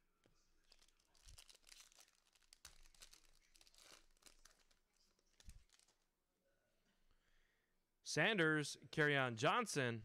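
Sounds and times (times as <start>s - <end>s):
foil wrapper crinkling and tearing: 0.6s - 6.0s.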